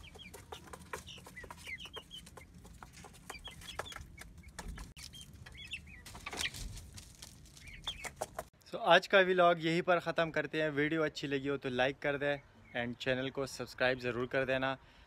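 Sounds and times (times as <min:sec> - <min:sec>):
chicks peeping: 0:00.0 - 0:08.5.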